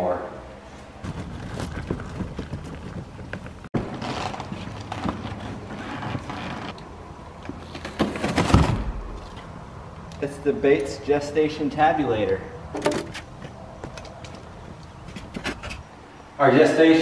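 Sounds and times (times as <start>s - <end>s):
cardboard rustling and scraping: 1.0s - 6.8s, 7.6s - 9.5s
hand truck rolling over gravel: 1.0s - 6.8s.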